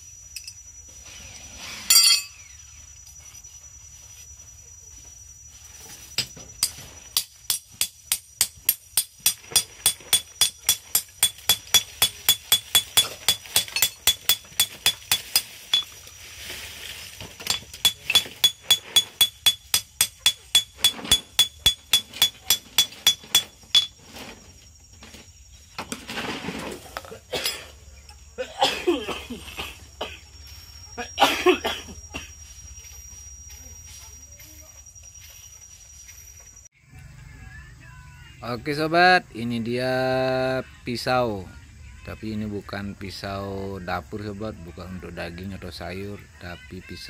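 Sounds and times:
hammer striking steel blade: 6.6s - 15.9s, 17.5s - 23.9s.

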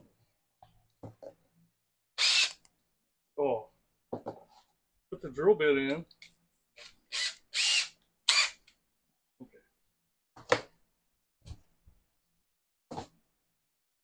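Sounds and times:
power drill whirring: 2.2s - 2.6s, 6.8s - 8.7s.

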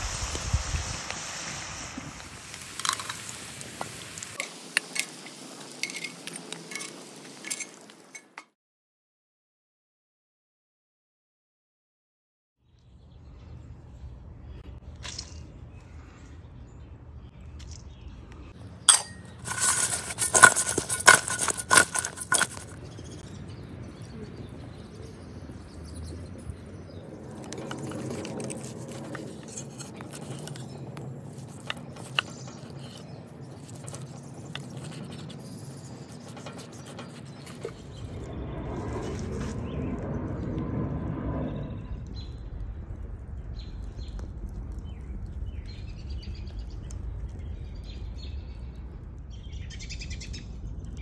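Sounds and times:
metallic scraping strokes: 18.9s - 22.8s.

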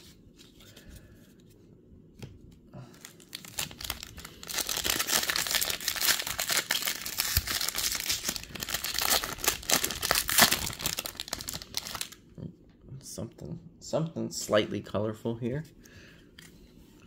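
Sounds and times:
wrapper torn open and crinkled: 3.0s - 12.2s.

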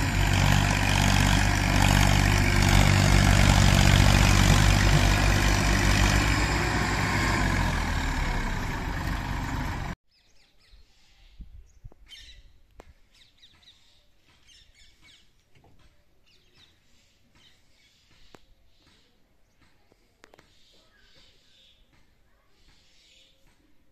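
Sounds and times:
tractor diesel engine running: 0.0s - 10.0s.

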